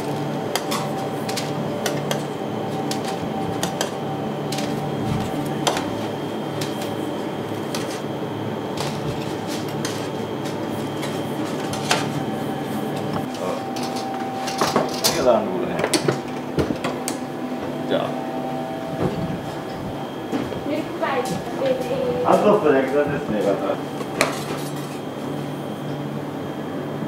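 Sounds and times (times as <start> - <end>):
utensils and dishes clinking: 0.0 - 8.1, 8.7 - 17.1, 23.4 - 25.0
machine hum: 0.0 - 27.0.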